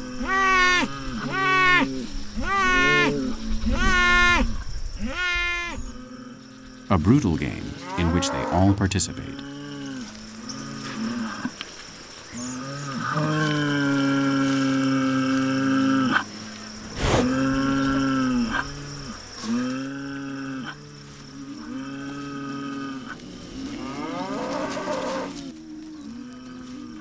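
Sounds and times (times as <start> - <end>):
bulls bellowing: 7.1 - 11.5, 17.0 - 27.0.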